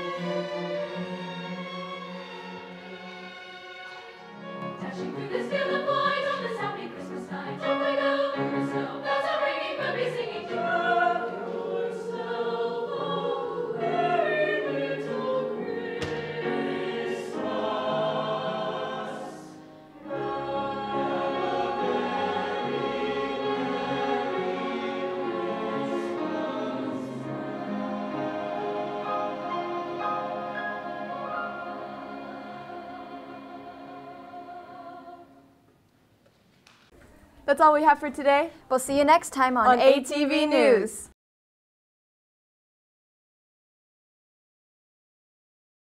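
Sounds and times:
string orchestra: 0.0 - 35.2
choir singing: 0.0 - 35.7.

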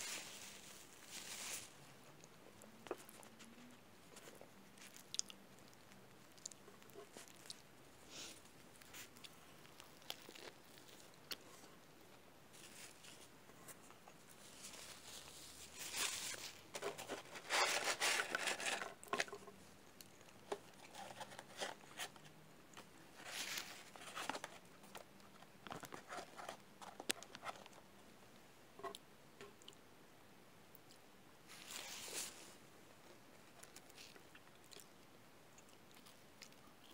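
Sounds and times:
paper wrappers crinkling: 0.0 - 2.2, 8.8 - 11.7, 12.5 - 19.6, 23.1 - 27.8, 31.5 - 32.6.

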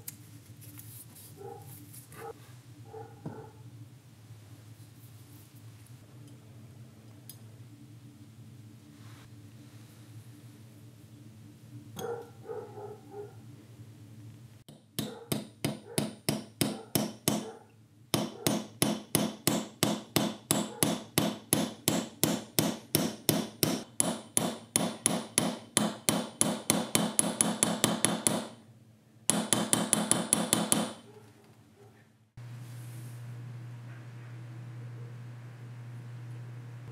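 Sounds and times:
hammer striking metal: 14.7 - 17.5, 18.2 - 28.6, 29.3 - 31.0.

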